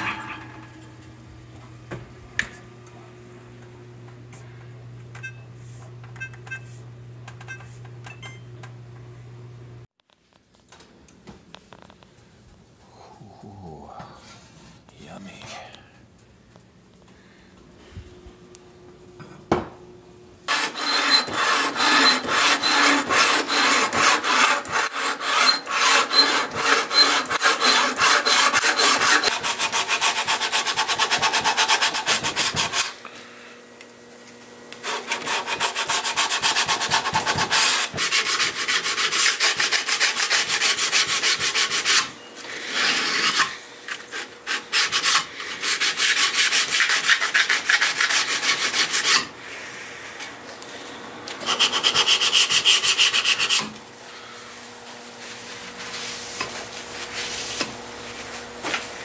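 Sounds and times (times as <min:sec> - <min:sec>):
sandpaper rubbing on steel blade: 0:20.5 - 0:33.0, 0:34.8 - 0:49.3, 0:51.4 - 0:53.7.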